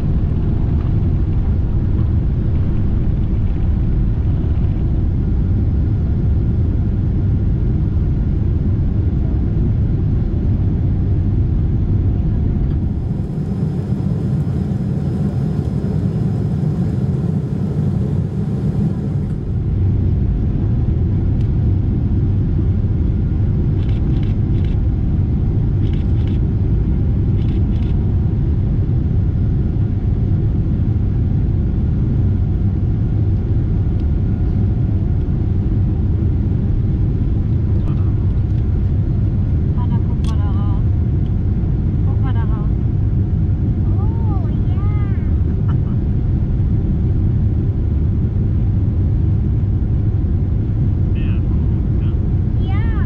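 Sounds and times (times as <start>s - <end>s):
jet engine cabin roar: 0.0s - 53.0s.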